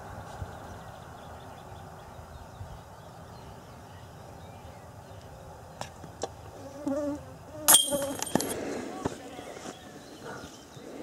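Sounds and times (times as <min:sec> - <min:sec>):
wind rumble on microphone: 0:00.0 - 0:05.0.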